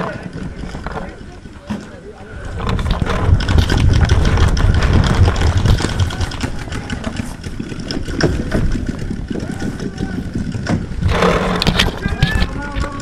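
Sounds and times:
wind and handling rumble: 0:00.0 - 0:13.0
irregular clicks and knocks: 0:10.3 - 0:13.0.

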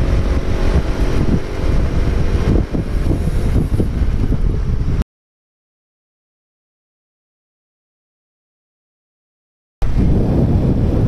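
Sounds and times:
motorcycle engine running: 0:00.0 - 0:05.0
wind buffeting microphone: 0:00.0 - 0:05.0, 0:09.8 - 0:11.0.

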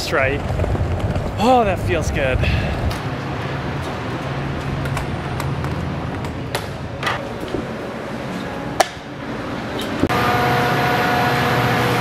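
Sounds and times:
steady low hum: 0:00.0 - 0:12.0
general background noise: 0:01.3 - 0:10.1.

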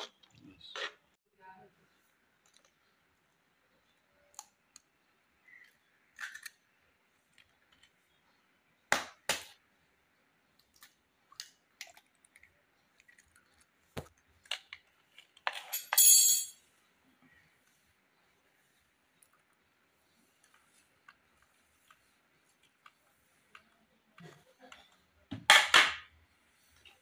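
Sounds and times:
ringing clink: 0:15.8 - 0:16.6.

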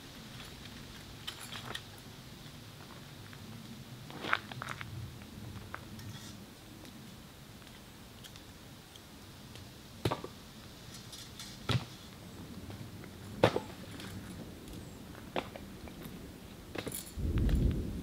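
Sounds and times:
wooden knocks of firewood: 0:10.0 - 0:10.4, 0:13.4 - 0:13.8.

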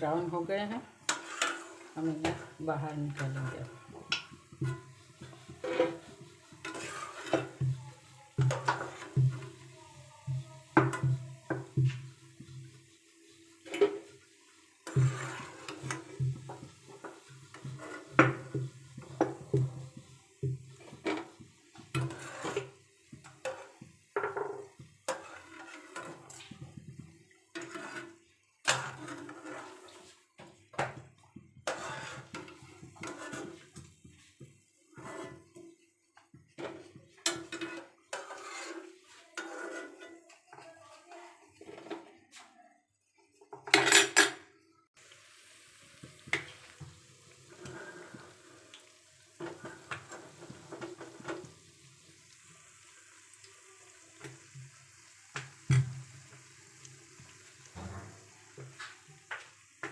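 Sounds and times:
steel ladle scraping frying pan: 0:01.0 - 0:09.7, 0:10.7 - 0:30.9, 0:31.6 - 0:33.9, 0:34.9 - 0:35.9, 0:36.6 - 0:40.6, 0:46.0 - 0:52.4, 0:57.2 - 0:59.9.

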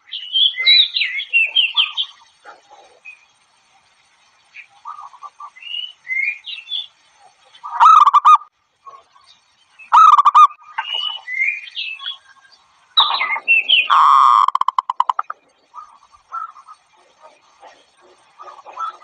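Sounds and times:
thin rising chirps: 0:09.7 - 0:16.7
dove staccato cooing: 0:10.0 - 0:11.2, 0:13.0 - 0:19.0.

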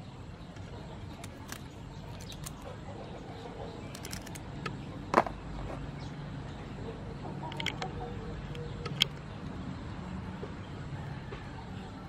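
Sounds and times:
prawn shells clicking and snapping: 0:00.7 - 0:02.8, 0:03.9 - 0:04.8, 0:07.5 - 0:09.6.

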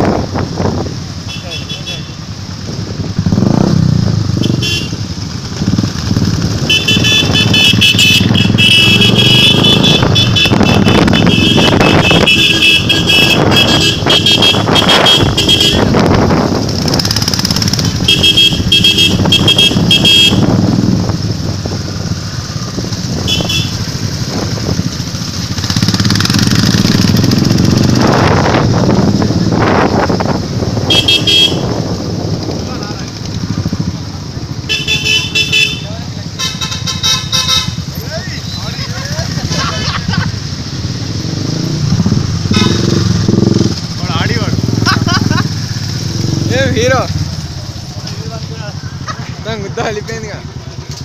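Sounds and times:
motorcycle engines running: 0:00.0 - 0:51.0
pulsing horn honking: 0:04.3 - 0:05.1, 0:06.6 - 0:16.2, 0:17.8 - 0:20.8, 0:23.2 - 0:24.0, 0:30.8 - 0:31.8, 0:34.6 - 0:38.6, 0:42.4 - 0:43.5.

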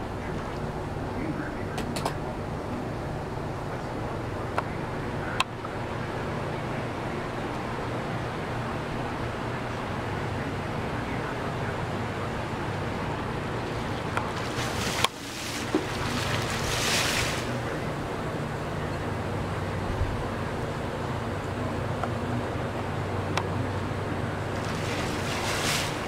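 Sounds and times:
low waterfront hum: 0:00.0 - 0:26.0
water splashing: 0:13.5 - 0:17.8, 0:24.4 - 0:26.0.

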